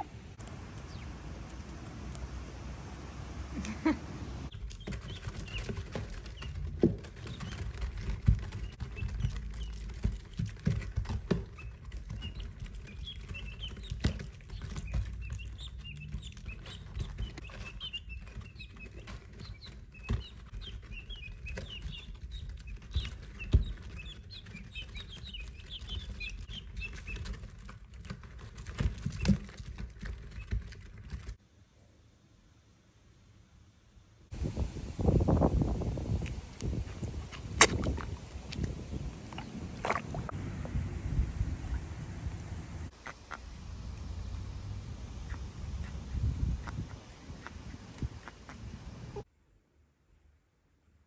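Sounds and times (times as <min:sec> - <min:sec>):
small birds chirping: 0:00.0 - 0:02.2, 0:04.4 - 0:31.4, 0:45.1 - 0:49.3
steady low rumble: 0:34.4 - 0:49.2.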